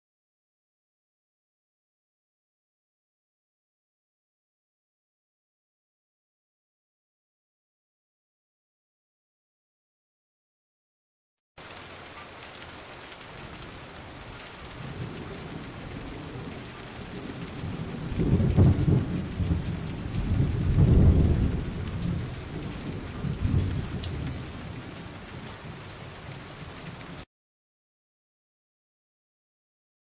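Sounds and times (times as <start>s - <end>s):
rain falling: 11.6s - 27.3s
thunder rumbling: 13.2s - 27.2s.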